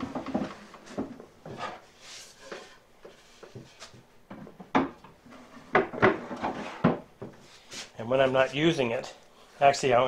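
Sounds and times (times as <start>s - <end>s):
hollow wooden knocks: 0.0s - 1.8s, 2.5s - 7.4s
wood scraping on wood: 0.0s - 4.1s, 5.2s - 8.6s.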